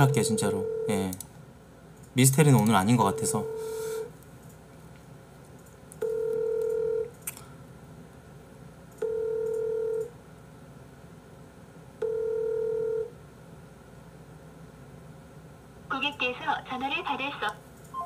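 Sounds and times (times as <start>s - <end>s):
telephone ringback tone: 6.0s - 7.1s, 12.0s - 13.1s.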